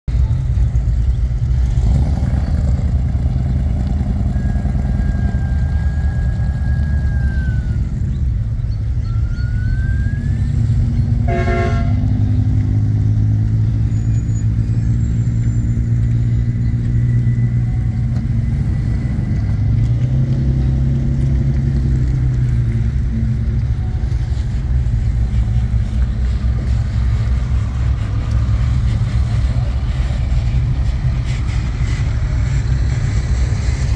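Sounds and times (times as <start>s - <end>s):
engines rumbling: 0.0s - 33.9s
high whistled notes: 8.7s - 11.0s
car horn toot: 11.2s - 12.2s.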